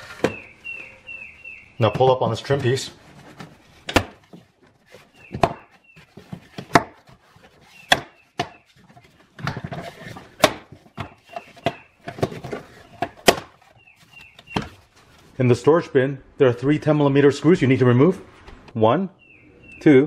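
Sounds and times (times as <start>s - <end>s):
plastic rubbing and rustling: 1.8s - 15.5s.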